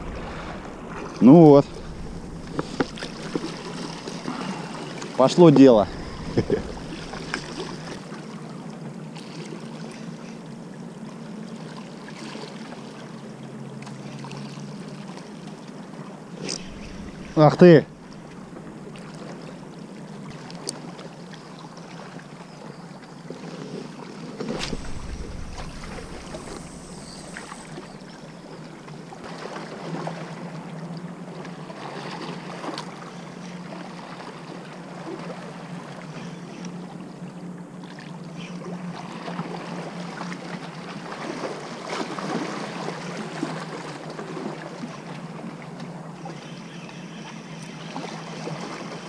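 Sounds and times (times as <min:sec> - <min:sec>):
steady low hum: 0:00.0 - 0:08.4, 0:16.1 - 0:20.5, 0:24.5 - 0:29.3
water lapping at rocks: 0:00.0 - 0:08.4, 0:16.3 - 0:22.3, 0:23.4 - 0:30.5
light wind: 0:00.0 - 0:46.7.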